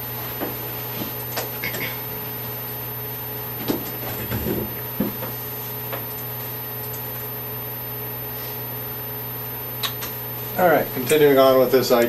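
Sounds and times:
room hum: 0.0 - 12.0.

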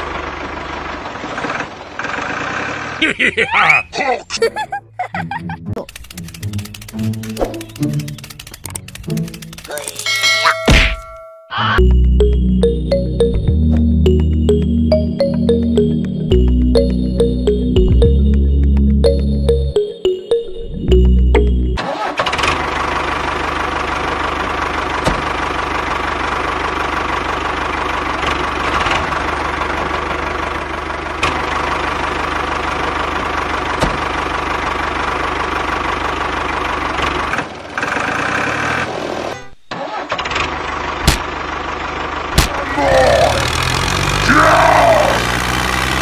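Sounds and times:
tractor engine running: 0.0 - 3.4, 4.5 - 11.2, 11.8 - 46.0
different engine sound: 0.0 - 46.0
sharp clicks: 5.8 - 10.1.

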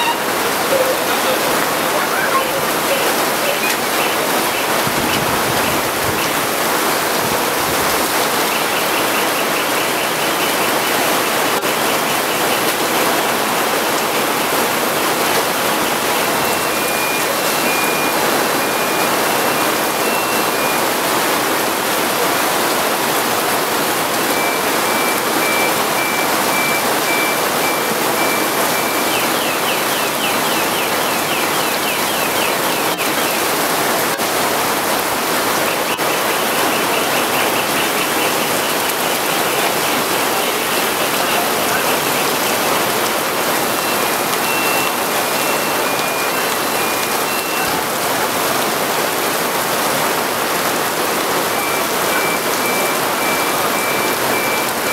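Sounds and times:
heavy rain on pavement and cars: 0.0 - 54.9
faint electronic beeping: 16.4 - 20.8, 24.3 - 29.2, 51.6 - 54.9.

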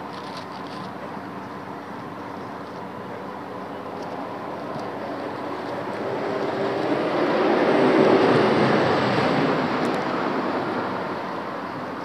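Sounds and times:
road vehicle passing: 2.5 - 12.0.

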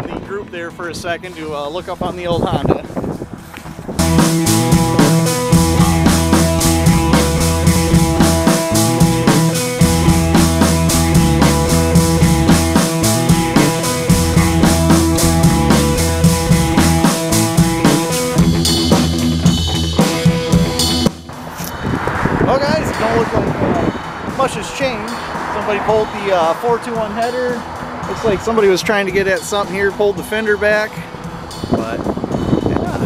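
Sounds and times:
drum kit beat: 3.9 - 21.8, 22.9 - 33.0
pulsing bass line: 3.9 - 29.4.

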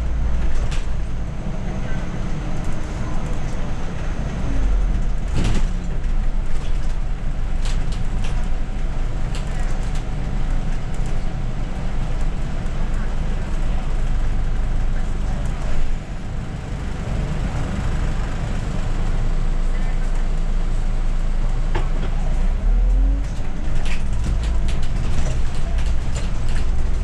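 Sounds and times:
bus engine and road rumble: 0.0 - 27.0
cab clicks and rattles: 23.2 - 27.0.

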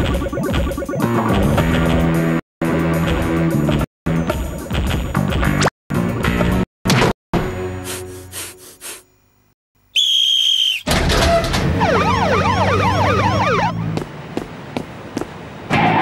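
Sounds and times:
police whistle blast: 10.0 - 12.2
police sirens wailing: 11.8 - 13.8.

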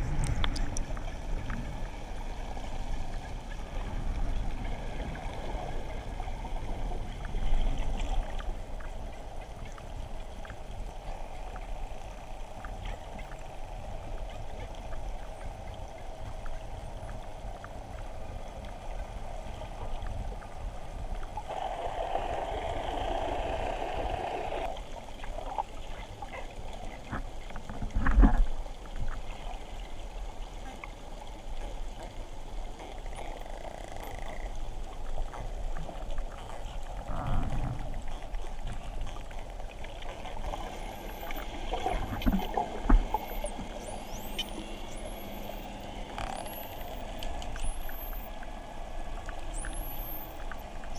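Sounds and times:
low rumble: 0.0 - 10.9
underwater water noise: 0.0 - 50.9.

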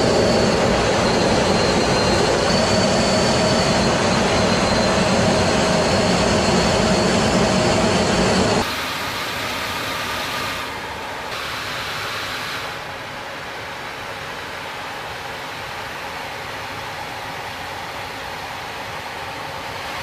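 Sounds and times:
jet aircraft cockpit noise: 0.0 - 20.0.

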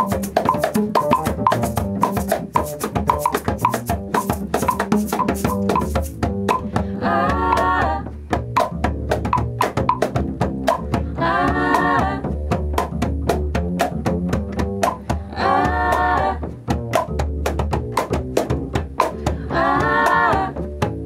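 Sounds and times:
shakers: 0.0 - 6.7
cajon: 0.0 - 21.0
clave: 0.0 - 21.0
plucked upright bass: 0.0 - 21.0
wordless vocal harmonies: 6.6 - 8.2, 10.9 - 12.4, 15.1 - 16.7, 19.1 - 21.0.

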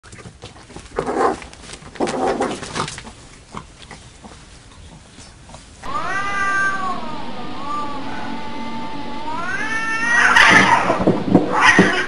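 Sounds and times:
cats scuffling: 0.0 - 5.8
cat yowling: 5.8 - 12.0.

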